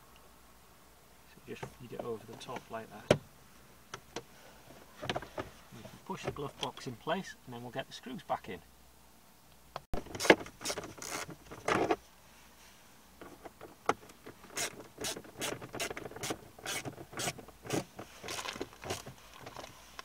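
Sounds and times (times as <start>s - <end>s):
plastic clatter and scraping: 4.7s - 6.4s, 10.0s - 12.0s, 13.2s - 19.8s.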